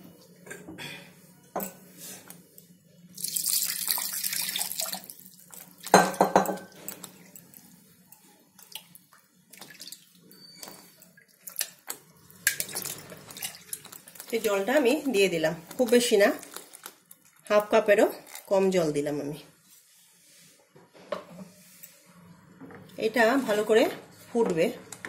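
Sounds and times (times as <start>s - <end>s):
water running into a jar: 3.2s - 7.4s, 11.5s - 14.8s.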